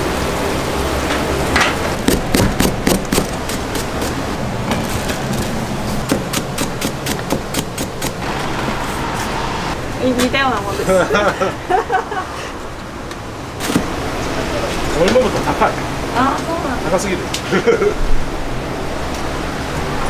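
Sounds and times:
cleaver chopping on wooden block: 2.0s - 4.1s, 6.0s - 8.2s.

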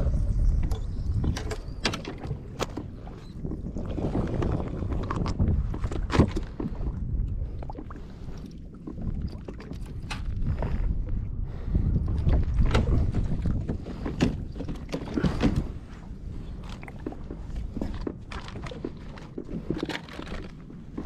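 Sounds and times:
low rumble of sea water: 0.0s - 21.0s
wind buffeting microphone: 0.0s - 21.0s
knocks and clicks from hull: 0.5s - 7.0s, 12.0s - 21.0s.

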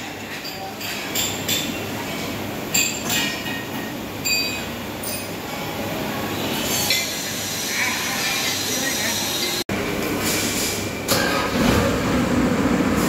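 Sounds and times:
sharp metallic clinks: 2.7s - 5.4s.

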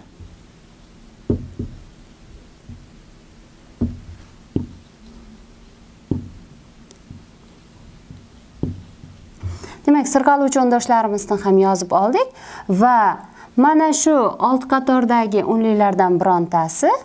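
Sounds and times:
marker knocking on whiteboard: 1.3s - 1.9s, 2.6s - 2.9s, 3.8s - 4.9s, 6.1s - 6.5s, 7.1s - 7.3s, 8.0s - 9.6s.

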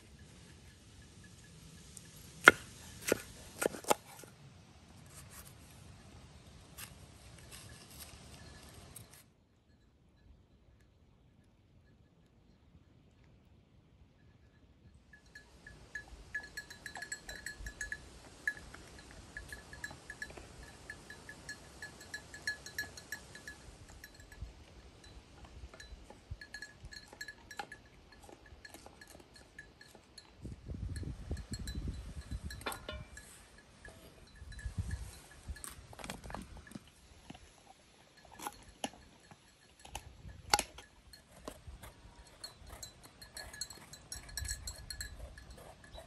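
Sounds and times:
small livestock bell clinking: 0.0s - 2.9s, 7.2s - 13.4s, 14.1s - 46.0s.

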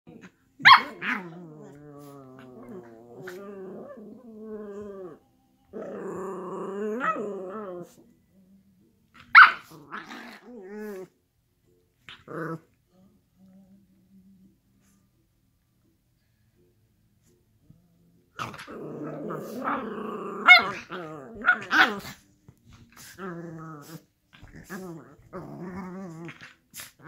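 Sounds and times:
dogs play-growling: 0.1s - 8.2s, 9.2s - 11.2s, 18.4s - 27.0s.

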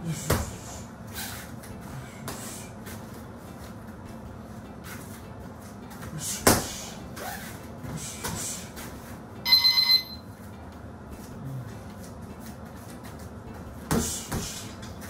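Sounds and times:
interval timer beeping: 9.4s - 10.3s.

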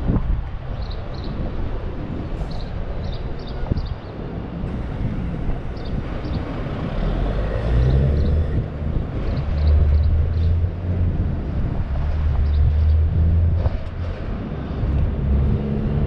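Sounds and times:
vehicle engine drone: 0.0s - 16.0s.

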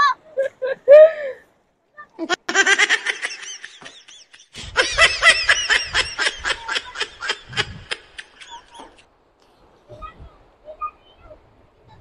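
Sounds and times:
high-pitched laughter: 2.2s - 9.0s.

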